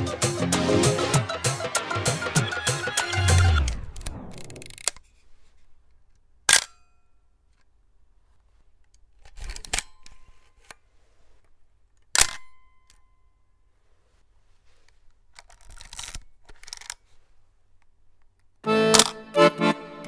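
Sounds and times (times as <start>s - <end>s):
background music: 0.0s - 4.7s, 18.6s - 20.0s.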